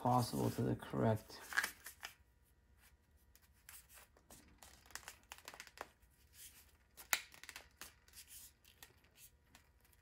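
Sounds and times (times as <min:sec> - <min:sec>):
aluminium sheet crinkling: 0:03.3 - 0:10.0.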